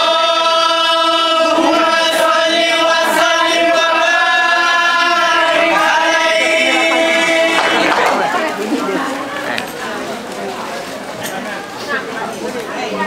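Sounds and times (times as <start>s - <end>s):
male voices chanting: 0.0s - 9.6s.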